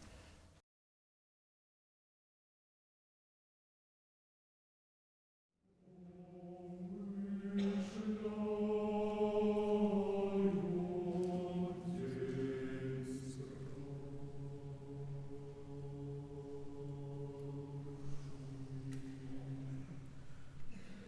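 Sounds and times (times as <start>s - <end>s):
choir chanting: 5.7s - 21.0s.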